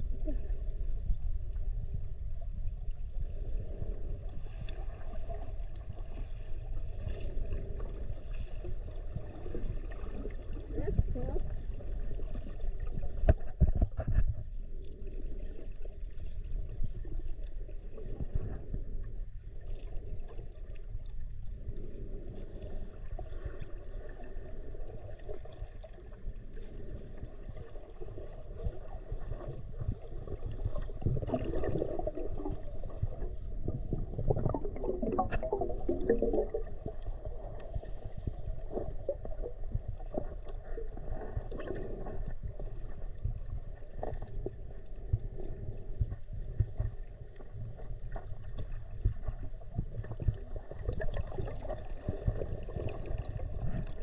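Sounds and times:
water gurgling: 0:00.0 - 0:14.4, 0:19.6 - 0:54.0
low muffled rumbling: 0:00.0 - 0:54.0.

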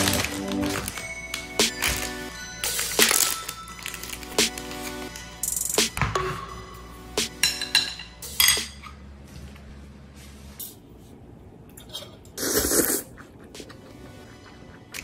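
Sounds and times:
person slurping noodles: 0:12.4 - 0:13.6.

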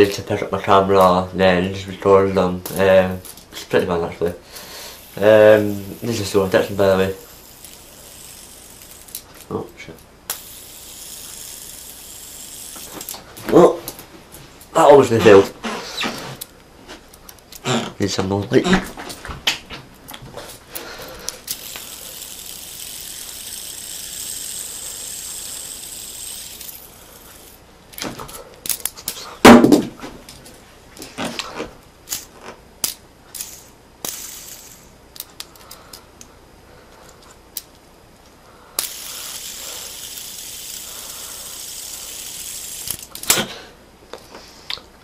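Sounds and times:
fidget spinner whirring: 0:04.9 - 0:14.0, 0:20.0 - 0:29.5, 0:32.0 - 0:36.3, 0:38.8 - 0:43.3.

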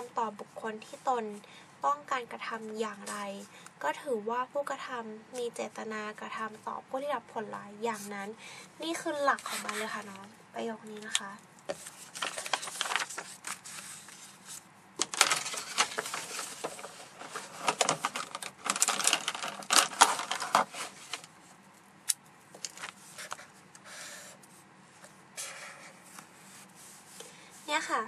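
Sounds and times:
paper rustling and scraping: 0:09.1 - 0:10.2, 0:11.7 - 0:21.5, 0:22.6 - 0:28.0.

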